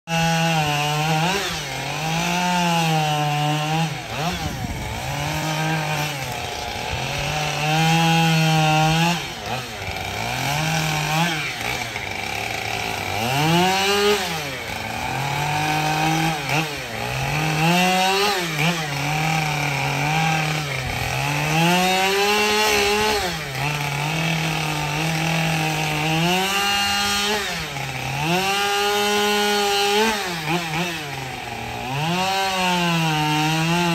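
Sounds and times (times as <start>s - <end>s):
chainsaw cutting log: 0.1s - 33.9s.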